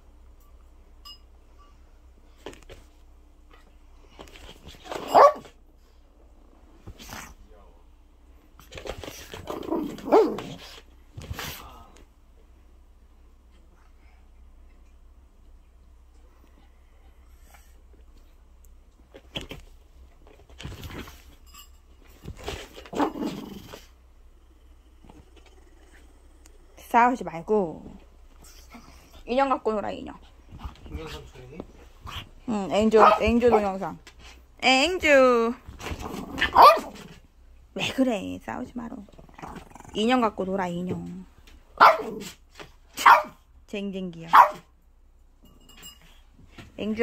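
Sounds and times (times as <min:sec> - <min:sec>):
dog barking: 0:05.0 - 0:05.6, 0:33.0 - 0:33.7, 0:36.4 - 0:37.0, 0:41.8 - 0:42.3, 0:43.0 - 0:43.4, 0:44.3 - 0:44.7
small dogs play-fighting: 0:06.6 - 0:07.4, 0:08.5 - 0:11.7, 0:22.1 - 0:26.8, 0:27.8 - 0:29.4, 0:30.1 - 0:34.5, 0:35.6 - 0:37.4.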